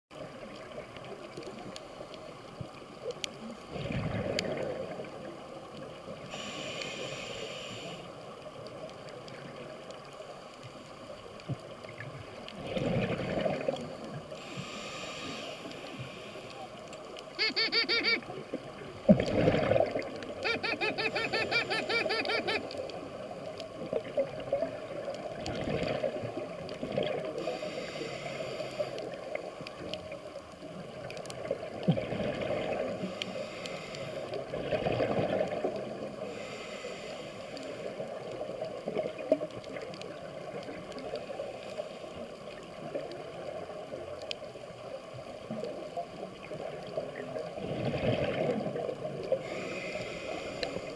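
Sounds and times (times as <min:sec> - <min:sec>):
exhaled bubbles rising: 0:03.7 - 0:05.1, 0:12.6 - 0:13.9, 0:19.1 - 0:20.2, 0:24.3 - 0:27.3, 0:31.8 - 0:32.9, 0:34.5 - 0:35.8, 0:47.6 - 0:49.0
diver breathing through regulator: 0:06.3 - 0:08.2, 0:14.4 - 0:16.6, 0:27.4 - 0:29.1, 0:33.0 - 0:34.4, 0:36.2 - 0:38.0, 0:49.3 - 0:50.9.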